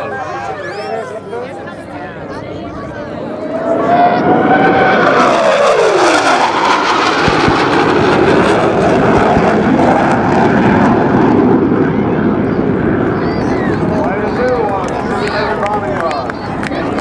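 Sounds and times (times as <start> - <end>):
jet engine rumble: 0.0 - 17.0
jet roaring on low pass: 0.0 - 17.0.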